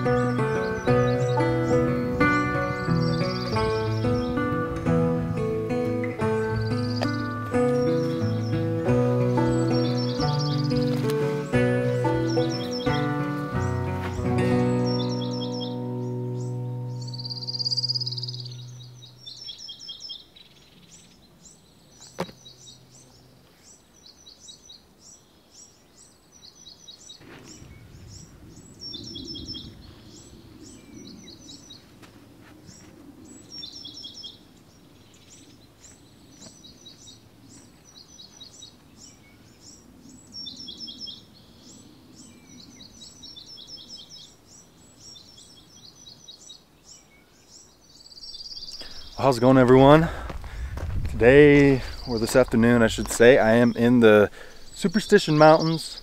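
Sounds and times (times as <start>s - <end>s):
small birds chirping: 0.0s - 56.0s
faint low rumble: 49.7s - 53.1s.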